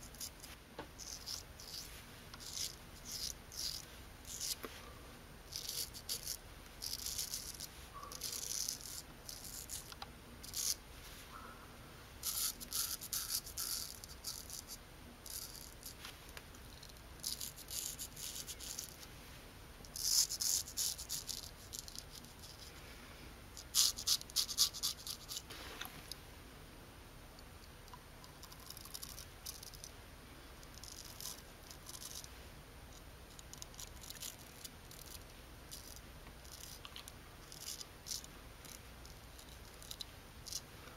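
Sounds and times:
straight razor scraping stubble: 0:00.0 - 0:04.7, 0:05.5 - 0:10.8, 0:12.2 - 0:16.1, 0:23.6 - 0:26.0.

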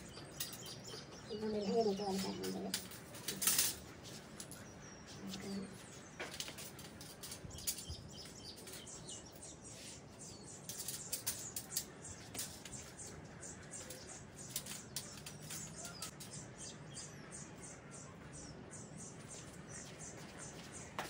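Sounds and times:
metal rack parts clicking: 0:02.7 - 0:04.6, 0:10.6 - 0:13.1, 0:13.7 - 0:16.4.

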